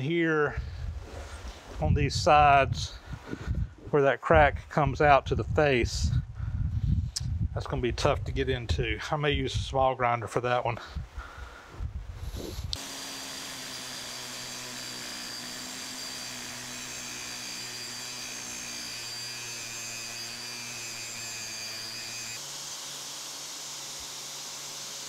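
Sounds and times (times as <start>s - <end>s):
angle grinder grinding cast iron: 12.3s - 25.0s.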